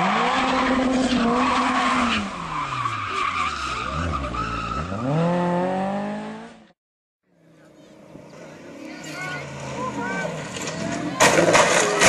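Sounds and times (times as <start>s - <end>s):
rally car engine revving: 0.0s - 6.8s
tyres on tarmac: 0.0s - 12.0s.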